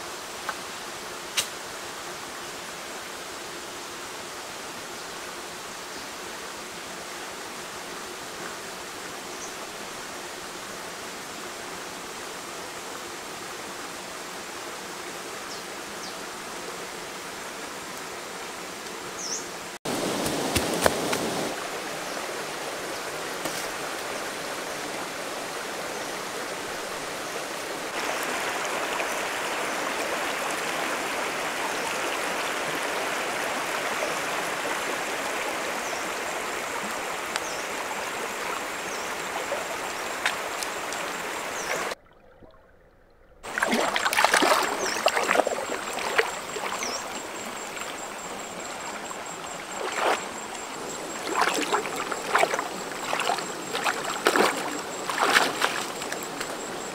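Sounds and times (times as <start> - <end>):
river running over stones: 19.6 - 42.0, 43.4 - 56.9
person wading through water: 41.7 - 56.9.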